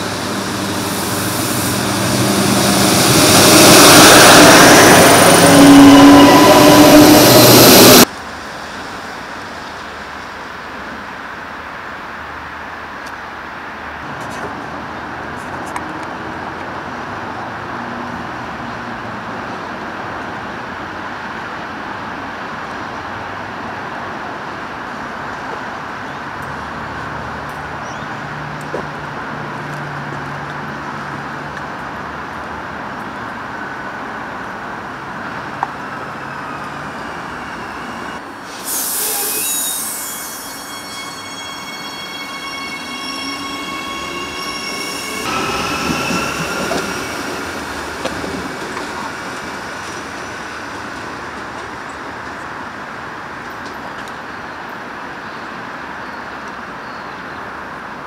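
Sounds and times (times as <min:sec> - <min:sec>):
loud hiss: 0:00.0 - 0:08.1, 0:36.1 - 0:51.3
steady high tones: 0:00.0 - 0:08.1, 0:35.7 - 0:51.0
electric train rumbling: 0:00.0 - 0:55.9.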